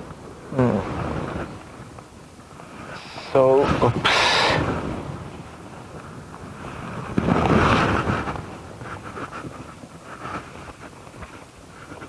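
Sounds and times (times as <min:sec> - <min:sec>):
low hiss: 0:00.0 - 0:05.4.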